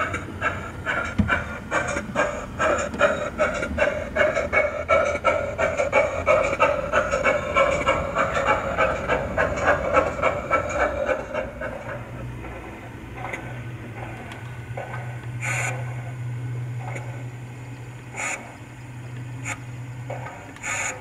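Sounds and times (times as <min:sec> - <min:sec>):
model steam locomotive chuffs: 0:00.0 - 0:21.0
steady low hum: 0:00.0 - 0:21.0.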